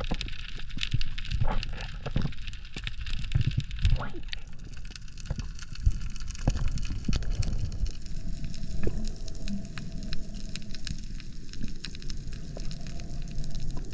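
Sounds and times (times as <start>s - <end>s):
underwater crackle of clicks: 0.0s - 13.9s
underwater rumbling thumps: 5.3s - 9.1s.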